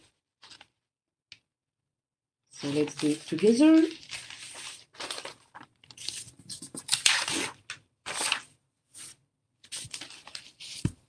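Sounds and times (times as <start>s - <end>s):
thin paper rustling: 2.6s - 8.4s, 9.0s - 11.0s.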